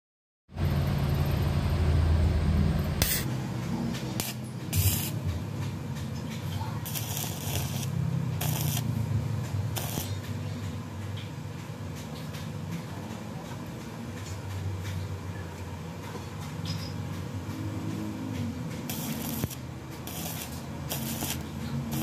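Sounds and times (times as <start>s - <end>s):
low hum: 0.5s - 5.6s
welding arc crackling: 3.0s - 12.0s, 17.9s - 22.0s.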